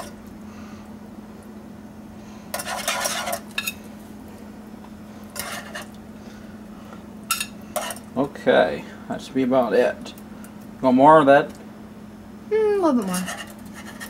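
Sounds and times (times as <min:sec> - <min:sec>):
steady low hum: 0:00.0 - 0:14.0
metal utensils scraping a saucepan: 0:02.5 - 0:03.8, 0:05.4 - 0:05.9, 0:07.3 - 0:08.0, 0:13.1 - 0:14.0.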